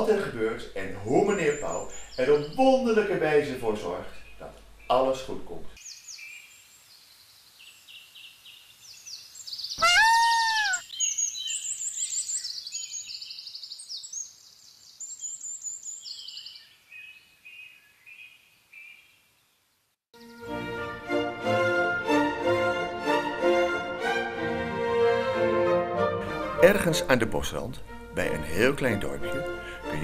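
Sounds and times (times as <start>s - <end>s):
small songbirds chirping: 1.1s - 20.4s
peacock call: 9.8s - 10.9s.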